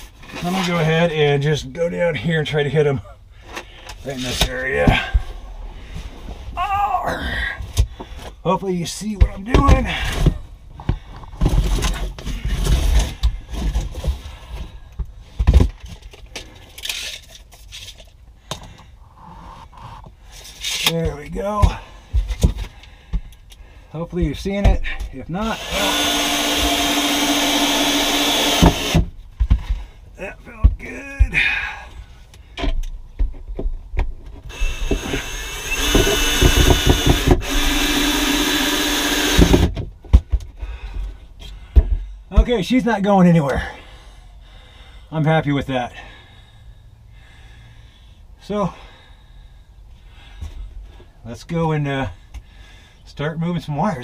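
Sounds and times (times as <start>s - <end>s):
scraping and rubbing: 19.1s - 21.0s
screws driven into board: 25.6s - 29.1s, 34.5s - 39.8s.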